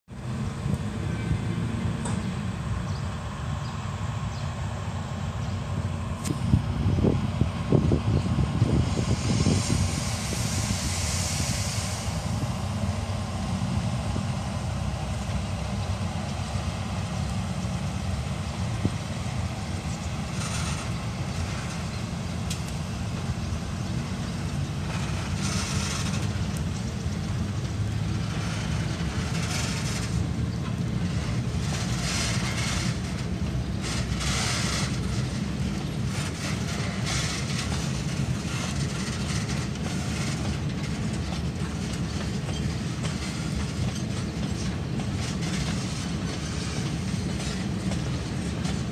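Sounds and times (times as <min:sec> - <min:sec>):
freight train rumbling: 0:00.0 - 0:48.9
wheels rolling on rails: 0:12.2 - 0:48.9.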